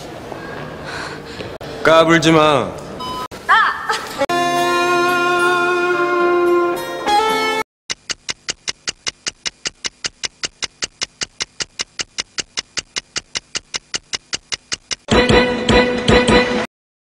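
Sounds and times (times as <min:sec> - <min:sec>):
rapid mechanical ticking: 0:07.9 - 0:15.1.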